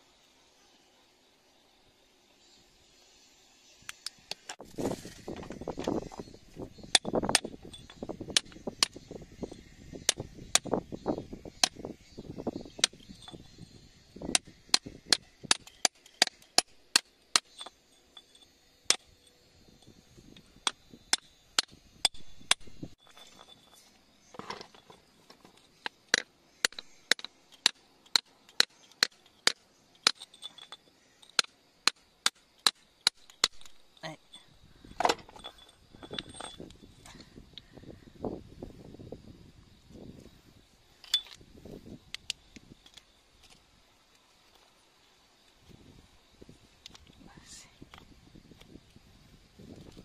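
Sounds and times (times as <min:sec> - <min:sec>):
steel spike tapping rock: 0:06.9 - 0:09.1, 0:10.0 - 0:10.8, 0:11.6 - 0:11.8, 0:14.2 - 0:19.1, 0:20.6 - 0:23.5, 0:25.8 - 0:33.8.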